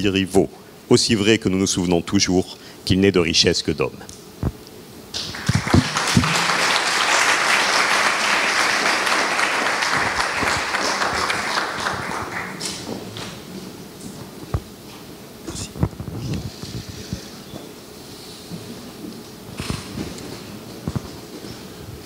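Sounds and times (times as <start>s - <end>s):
audience applauding: 5.1s - 12.9s.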